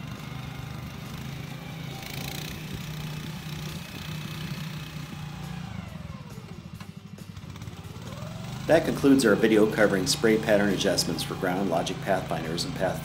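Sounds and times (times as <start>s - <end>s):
small gasoline engine running: 0.0s - 13.0s.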